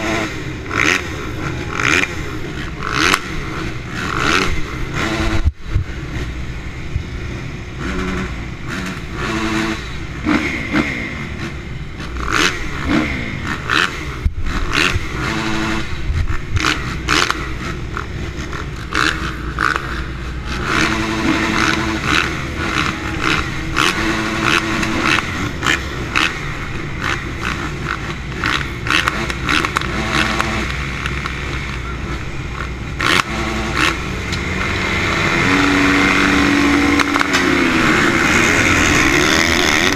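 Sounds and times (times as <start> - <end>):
motocross bikes revving: 0.0 - 39.9.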